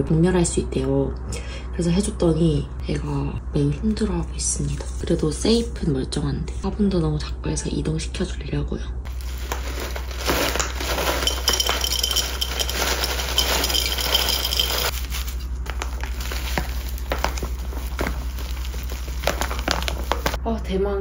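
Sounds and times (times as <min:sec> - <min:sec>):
crackling rustling handling noises: 0:09.1 - 0:20.4.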